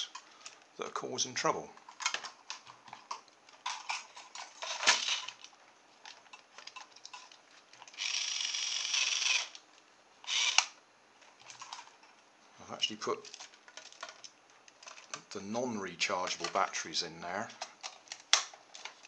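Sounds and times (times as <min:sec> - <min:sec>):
plastic clicks and handling: 0:01.8 - 0:08.1, 0:13.1 - 0:15.4, 0:16.2 - 0:16.8, 0:17.5 - 0:19.0
toy car motor whirring: 0:04.6 - 0:05.4, 0:07.8 - 0:09.6, 0:10.3 - 0:10.7.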